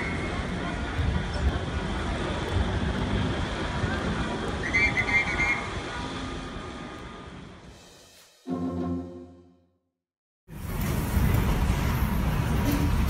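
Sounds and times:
crowd hubbub: 0.0 - 7.7, 10.7 - 13.0
street traffic: 0.0 - 9.7, 10.5 - 13.0.

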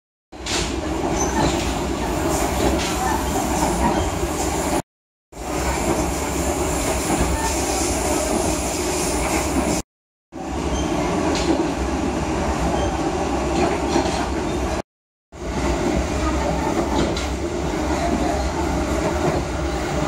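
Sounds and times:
train wheels rumbling on track: 0.4 - 4.8, 15.4 - 20.0.

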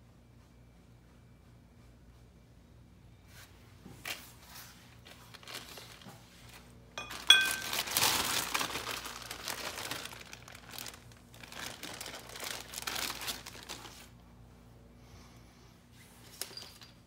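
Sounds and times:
crinkling and rustling handling: 3.3 - 14.2, 15.9 - 17.0
ringing metal clink: 7.0 - 7.8.

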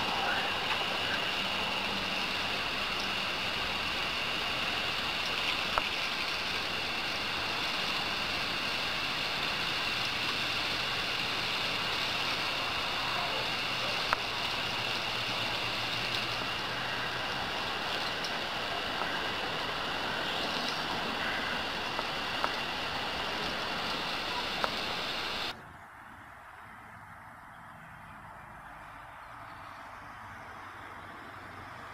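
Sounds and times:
hose water falling on grass: 0.0 - 25.5.

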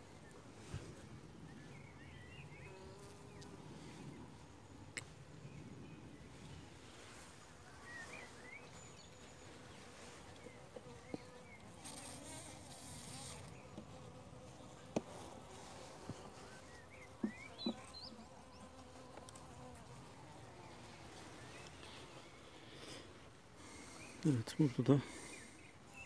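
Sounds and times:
honeybees humming: 7.4 - 26.0.

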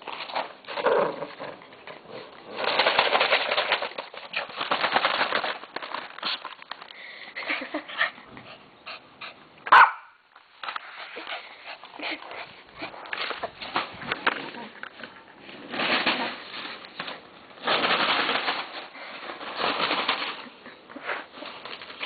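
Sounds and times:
dog tearing newspaper: 2.1 - 6.7, 15.6 - 22.0.

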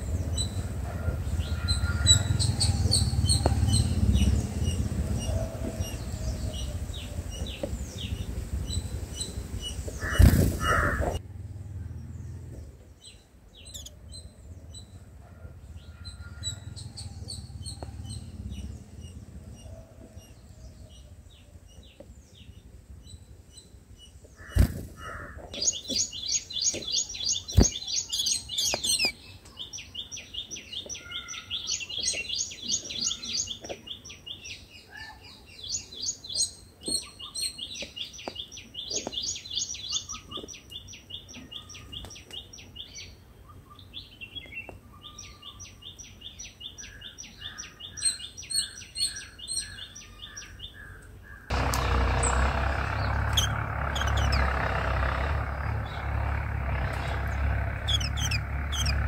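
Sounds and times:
nestlings begging chirps: 0.0 - 11.2, 13.1 - 15.0, 15.8 - 21.0, 25.5 - 34.6, 43.8 - 59.0.

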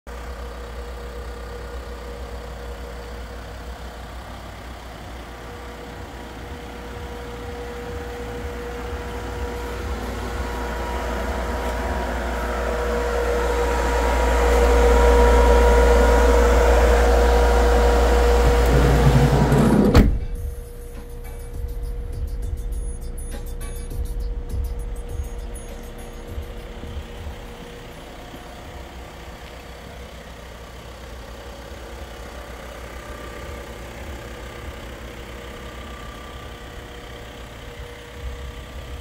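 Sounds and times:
diesel van idling: 0.1 - 39.0
steady whine: 3.1 - 39.0
refrigeration unit whirring: 5.4 - 29.7.

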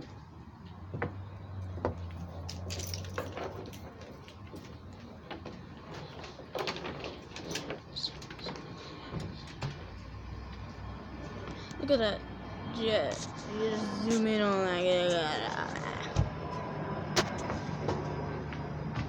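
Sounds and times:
cable rattling: 2.1 - 10.2.

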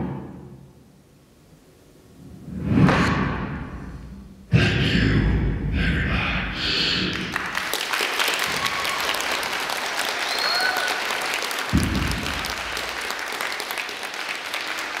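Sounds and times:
audience applauding: 7.1 - 15.0
short whistles: 10.2 - 10.9
low thump: 11.7 - 12.4.

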